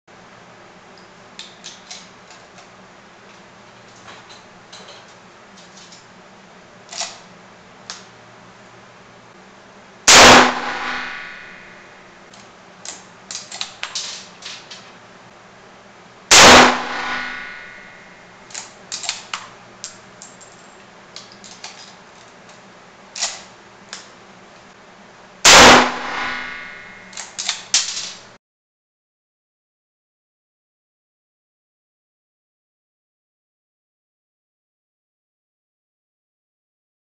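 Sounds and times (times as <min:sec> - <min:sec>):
rifle shots echoing: 0:10.1 - 0:11.9, 0:16.3 - 0:18.1, 0:25.5 - 0:27.1
rifle bolt clicks and clacks: 0:18.5 - 0:20.4.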